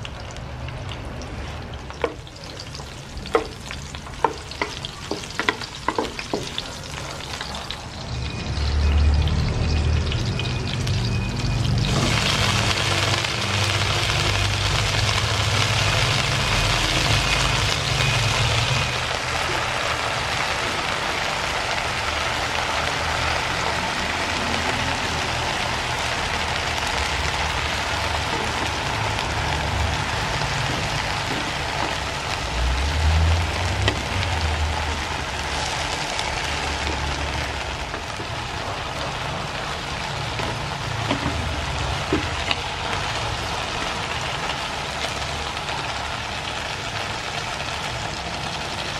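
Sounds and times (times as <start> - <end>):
stir-frying sizzle: 0.0 - 48.9
wooden spatula knocking pan: 2.0 - 6.6.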